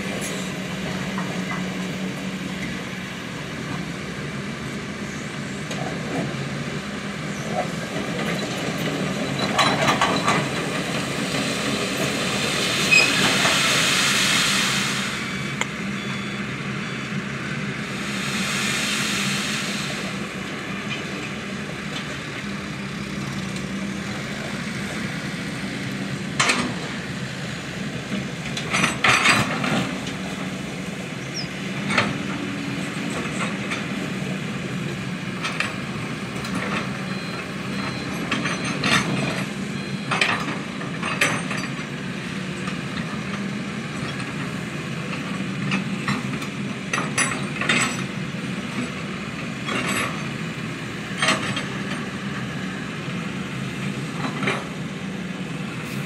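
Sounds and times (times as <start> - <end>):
distant diesel engines running: 0.0 - 56.0.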